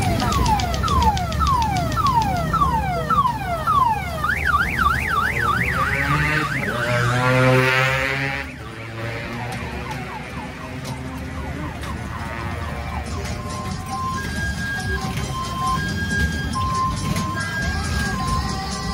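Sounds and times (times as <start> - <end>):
electronic car alarm siren: 0.0 - 18.9.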